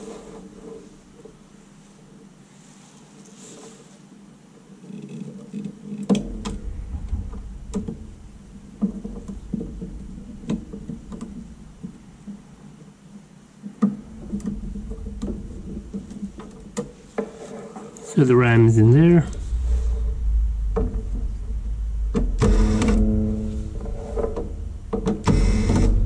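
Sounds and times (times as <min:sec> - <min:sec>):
low rumble: 0:06.2 - 0:12.6, 0:14.0 - 0:17.2, 0:18.2 - 0:26.0.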